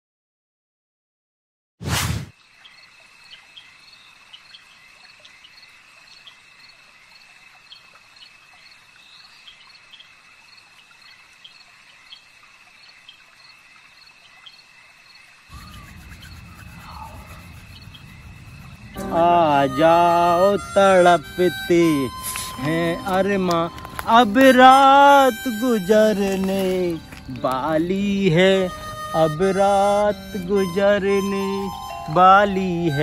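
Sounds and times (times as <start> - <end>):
crickets trilling: 2.4 - 33.0
low rumble: 15.6 - 19.8.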